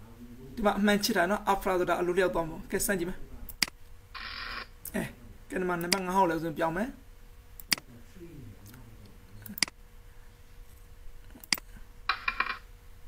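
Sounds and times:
computer mouse clicks: 0:11.4 - 0:11.7
ringing coin-drop chime: 0:12.1 - 0:12.7.

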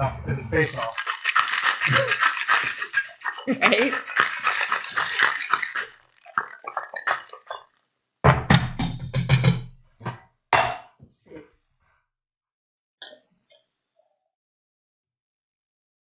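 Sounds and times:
shaker knock and clatter: 0:00.6 - 0:05.8
ice rattling in cocktail shaker: 0:00.6 - 0:07.7.

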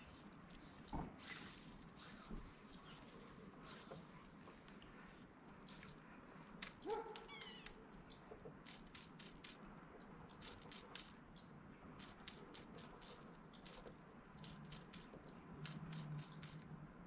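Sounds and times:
faint clicks: 0:05.6 - 0:16.8
short squeaky call: 0:07.2 - 0:07.7.

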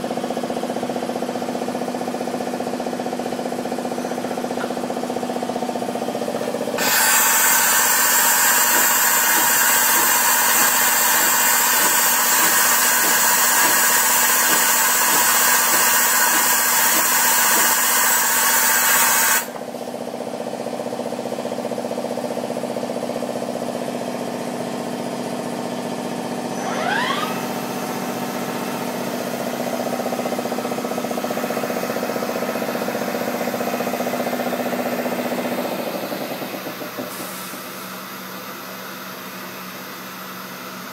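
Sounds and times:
machine hum: 0:00.0 - 0:39.1
loud steady hiss: 0:06.8 - 0:19.6
short rising whine: 0:26.4 - 0:36.6.

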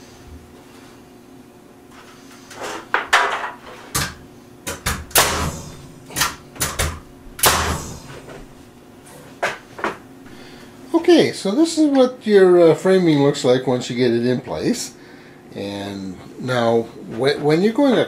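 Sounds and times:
nail gun shots with hiss: 0:04.9 - 0:08.1.

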